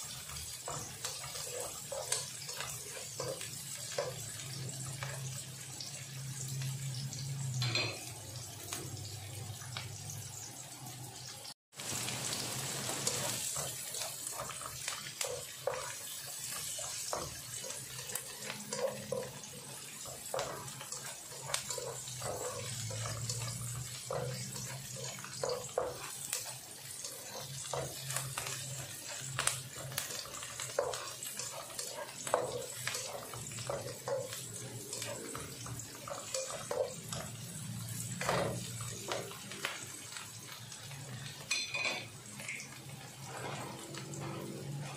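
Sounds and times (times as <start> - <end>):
spatula scraping and tapping pan: 0.0 - 8.1, 12.8 - 40.3
onions sizzling in oil: 0.0 - 44.9.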